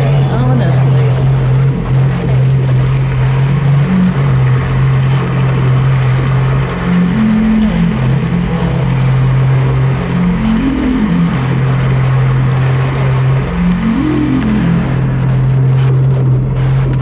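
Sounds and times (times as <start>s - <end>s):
low electronic drone: 0.0s - 17.0s
higher shifting electronic tone: 6.6s - 16.5s.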